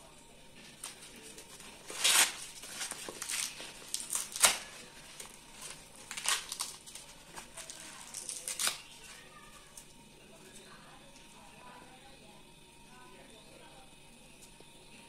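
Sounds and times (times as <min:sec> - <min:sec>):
corn husk leaves tearing: 0:00.6 - 0:09.9.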